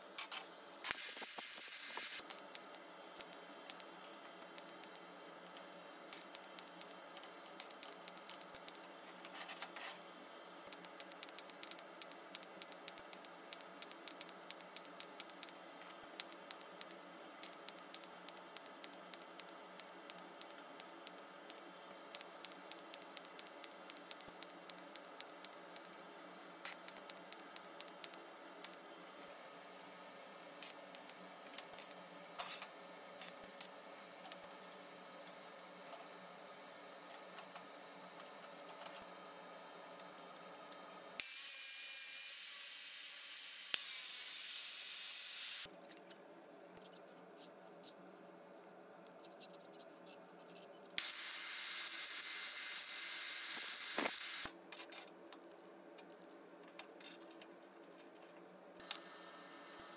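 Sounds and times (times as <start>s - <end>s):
welding hum: 0.0s - 32.0s, 41.2s - 45.7s, 51.0s - 54.6s
welding crackles and clicks: 0.2s - 29.1s, 30.6s - 34.5s, 40.0s - 45.7s, 50.9s - 57.5s.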